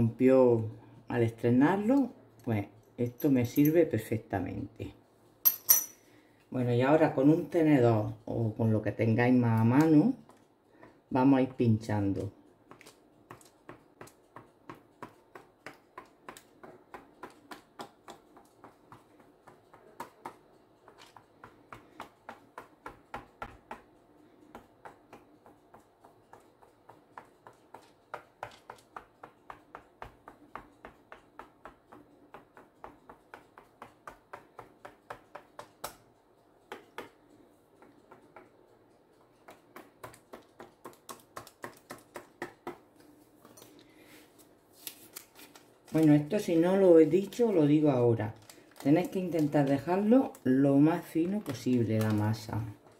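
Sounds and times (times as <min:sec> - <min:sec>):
fork tapping through dough: 0:12.5 - 0:43.1.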